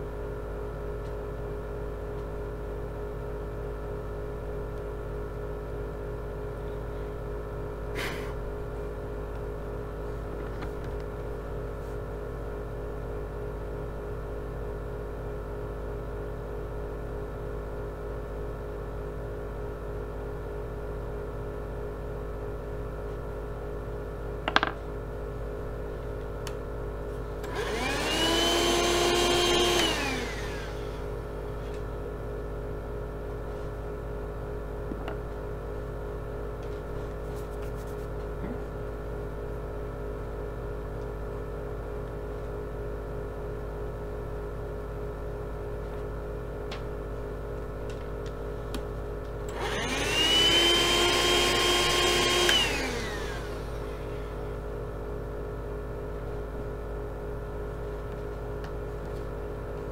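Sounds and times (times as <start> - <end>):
steady hum: 0.0 - 59.9
hand vacuum motor whine: 27.4 - 31.2, 49.5 - 54.6.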